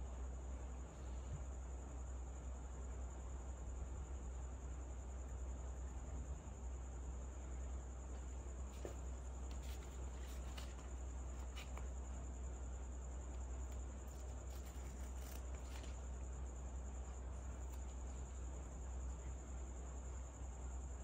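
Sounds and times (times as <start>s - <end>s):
paper rustling: 8.7s - 12.0s, 13.6s - 16.1s.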